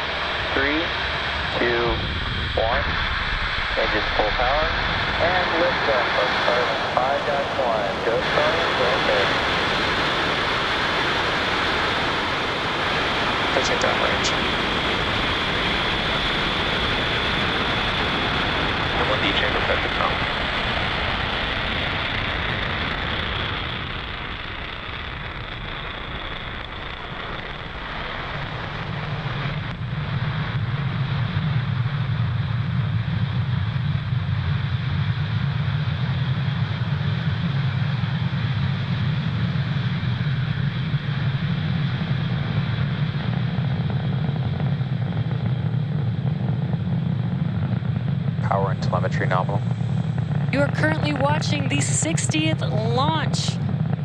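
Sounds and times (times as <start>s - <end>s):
rocket engine rumble: 0.0s - 54.0s.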